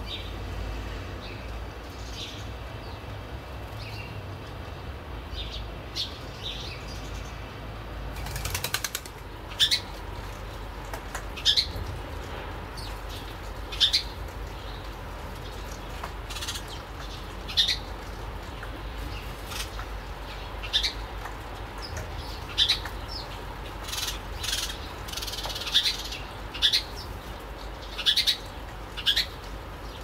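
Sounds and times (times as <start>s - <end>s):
sparrows chirping: 1.2s - 3.1s, 3.7s - 4.2s, 5.3s - 7.5s, 8.3s - 12.0s, 12.7s - 30.0s
wings fluttering: 8.1s - 9.4s.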